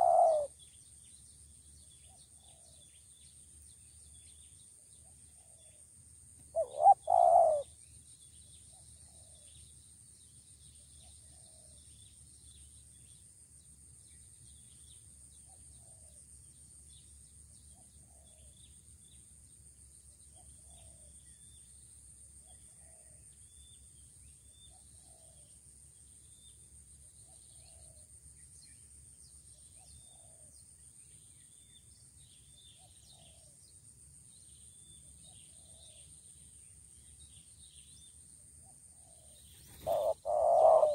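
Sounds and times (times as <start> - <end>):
dove cooing: 0.0 - 0.5, 6.5 - 7.7, 39.7 - 40.9
faint chirps: 0.0 - 13.3, 19.9 - 40.9
high insect drone: 30.4 - 40.9.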